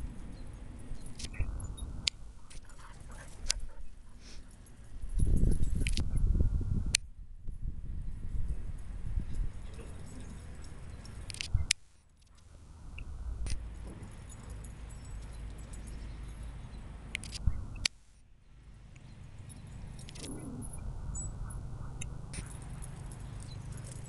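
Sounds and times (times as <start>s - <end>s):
metal dog tags jingling: 0.0s - 6.2s, 8.7s - 11.4s, 13.5s - 17.4s, 19.1s - 21.3s, 22.1s - 24.0s
sharp clicks: 17.1s - 18.0s, 20.0s - 20.4s
low microphone rumble: 20.2s - 22.8s.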